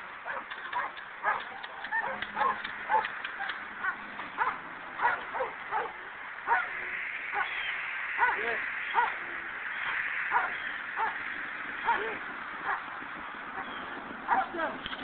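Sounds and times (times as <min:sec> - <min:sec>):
dog yelping barks: 0:00.3 - 0:06.7, 0:14.3 - 0:14.6.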